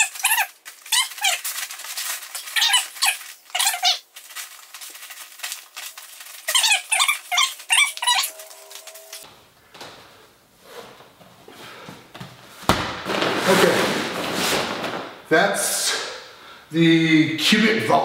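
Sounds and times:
sleeping pad squeaking: 0:02.3 - 0:04.0, 0:06.4 - 0:09.2.

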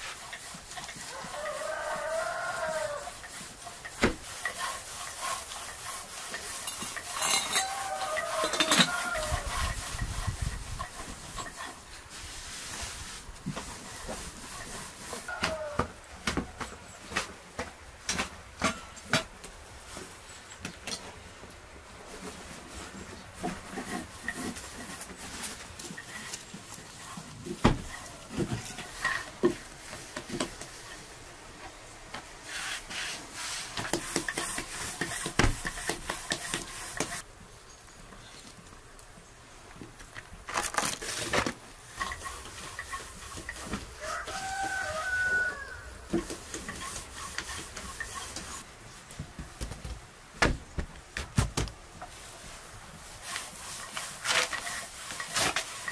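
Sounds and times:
dough sheets flapped and patted: 0:31.7 - 0:37.3, 0:46.1 - 0:55.9.

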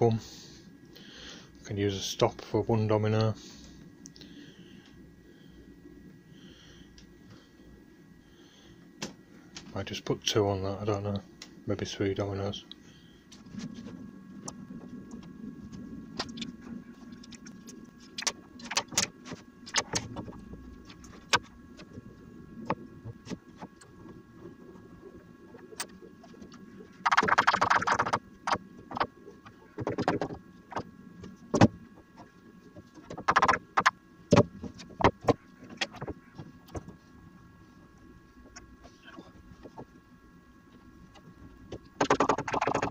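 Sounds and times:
knocks and clicks of wood and metal: 0:29.8 - 0:30.8, 0:32.8 - 0:37.0, 0:41.1 - 0:42.9.

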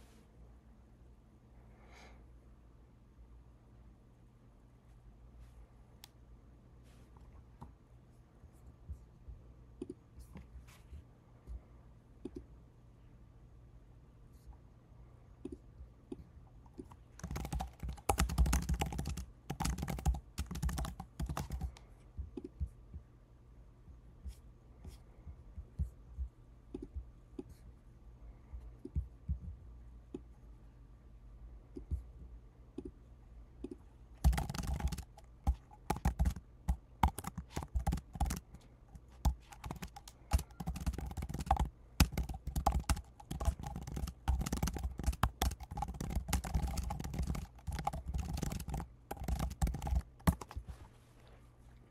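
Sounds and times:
typing on computer keyboard: 0:16.8 - 0:21.8, 0:34.2 - 0:50.6.

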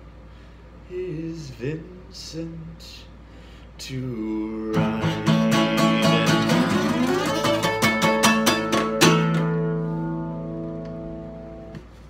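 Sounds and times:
acoustic guitar fingerpicked: 0:04.7 - 0:11.8.

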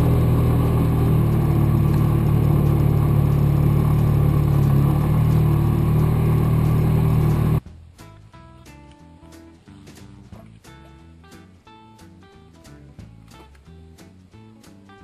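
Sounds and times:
utility vehicle engine running: 0:00.0 - 0:07.6
faint music: 0:07.6 - 0:15.0.

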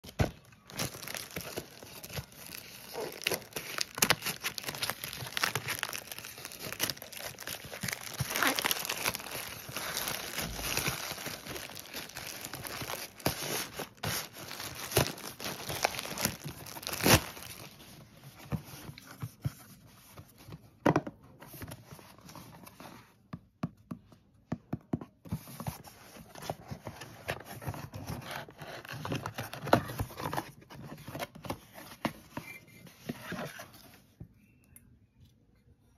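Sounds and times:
plastic mailer tearing and crinkling: 0:00.0 - 0:17.8.

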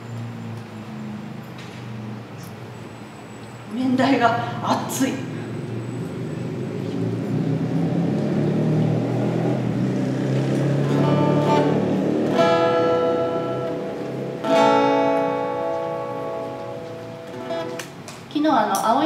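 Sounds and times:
acoustic guitar notes: 0:10.7 - 0:18.0
acoustic guitar chords strummed: 0:10.8 - 0:18.0.

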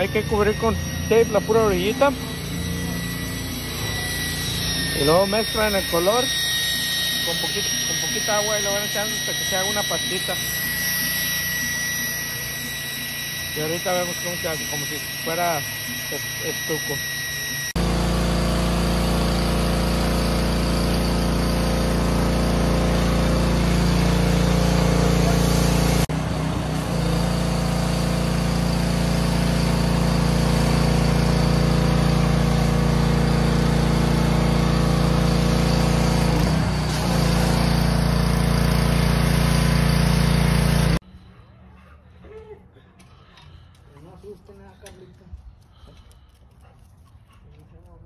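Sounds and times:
engine running steadily: 0:00.0 - 0:41.0.

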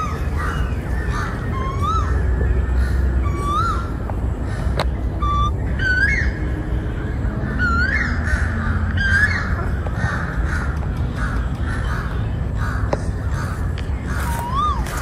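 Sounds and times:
crows cawing: 0:08.0 - 0:15.0.

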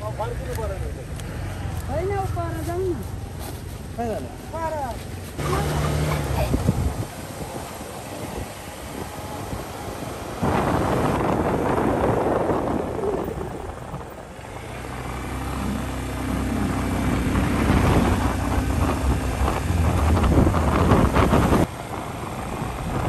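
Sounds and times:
vehicle engine running: 0:00.6 - 0:07.6, 0:13.3 - 0:23.0
wind rushing over microphone: 0:05.3 - 0:23.0.

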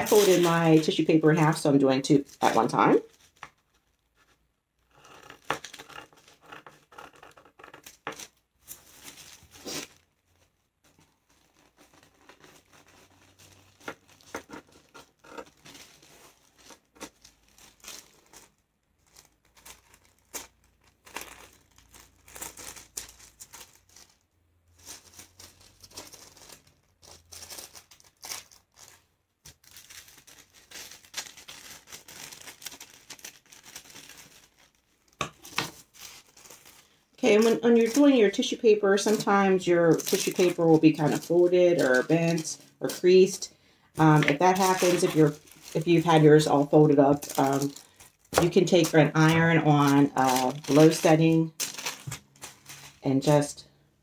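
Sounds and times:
paper rustling: 0:00.0 - 0:01.5, 0:02.1 - 0:43.4, 0:44.0 - 0:53.5
scissors cutting tissue paper: 0:11.0 - 0:17.8, 0:37.3 - 0:43.4, 0:44.0 - 0:53.0.

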